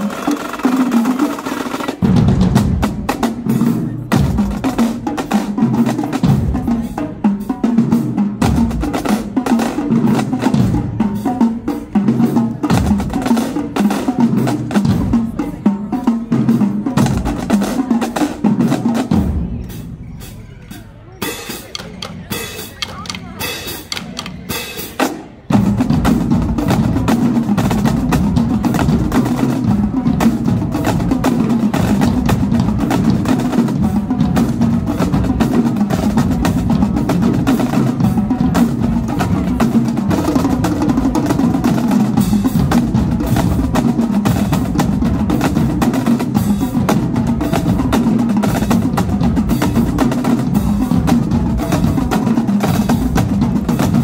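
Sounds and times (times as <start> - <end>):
marching drumline cadence: 0.0 - 54.0.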